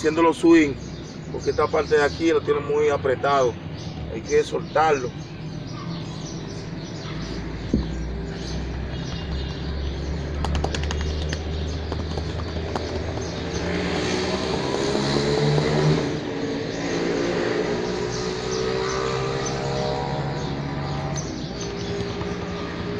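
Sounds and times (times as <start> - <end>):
vehicle engine passing by: 6.5 - 22.9.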